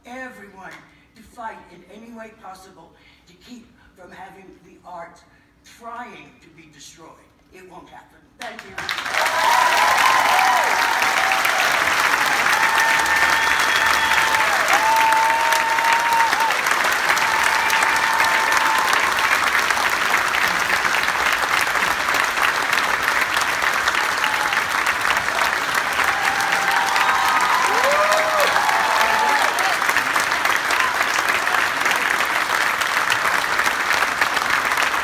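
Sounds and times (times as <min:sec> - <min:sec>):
audience applauding: 0:08.6 - 0:35.0
long held whoops: 0:09.2 - 0:19.3, 0:26.0 - 0:29.9.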